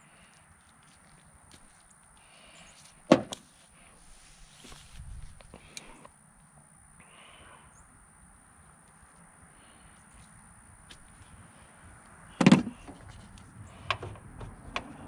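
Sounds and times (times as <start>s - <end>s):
faint handling noise: 2.8s - 6.6s
hard clunk: 3.1s - 3.4s, 12.4s - 13.0s.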